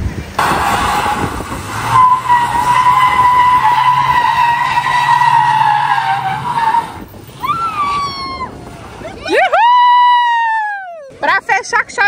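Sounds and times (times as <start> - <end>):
tyres squealing on wet concrete: 0.4 - 9.0.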